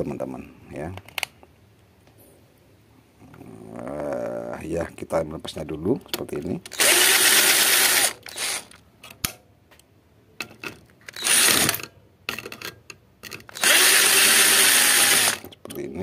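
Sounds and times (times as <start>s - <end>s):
cordless drill spinning: 6.7s - 8.8s, 11.1s - 11.8s, 13.5s - 15.5s.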